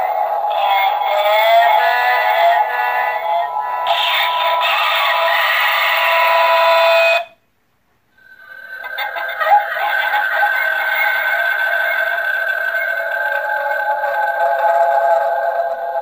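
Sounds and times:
toy doll singing through small speaker: 0.0s - 7.2s.

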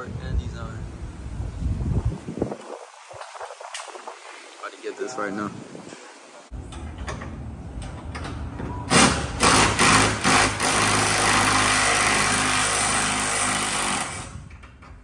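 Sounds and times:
impact wrench running: 8.9s - 14.4s.

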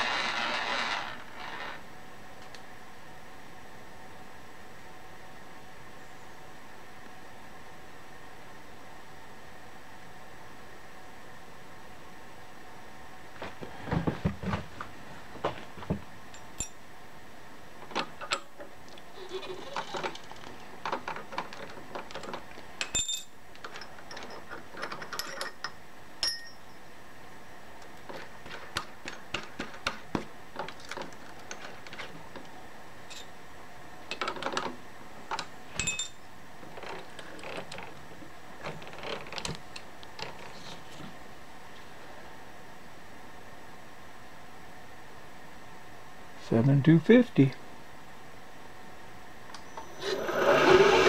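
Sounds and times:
steady background hum: 0.0s - 51.0s
small metal tools clinking: 22.8s - 26.8s.

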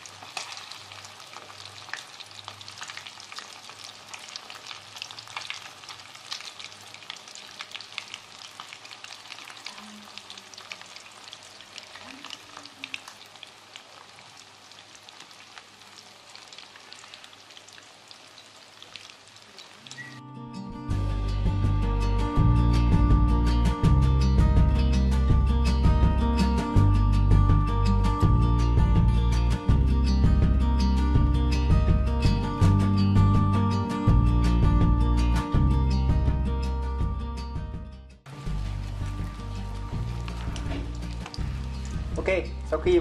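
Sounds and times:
fish frying in hot oil: 0.0s - 20.2s, 38.3s - 43.0s.

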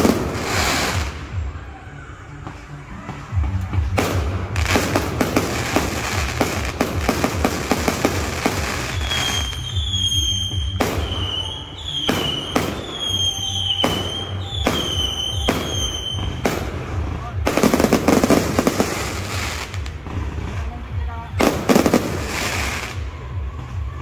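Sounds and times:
fireworks crackling pops: 0.0s - 1.4s, 2.5s - 23.1s
fireworks sharp bangs: 0.0s - 1.4s, 3.8s - 23.0s
high whistle: 8.8s - 16.4s.

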